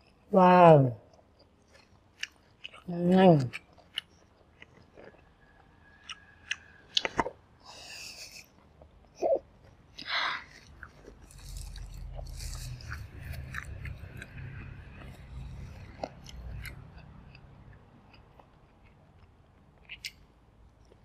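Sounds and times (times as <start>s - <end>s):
person chewing food: 1.0s - 21.0s.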